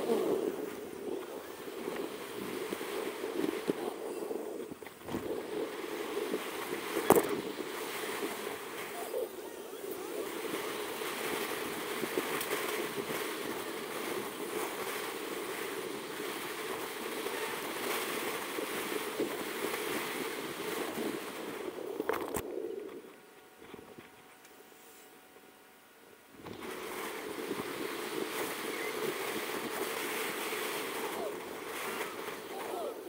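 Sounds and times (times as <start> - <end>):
rushing wind: 0.0 - 24.1, 26.3 - 33.0.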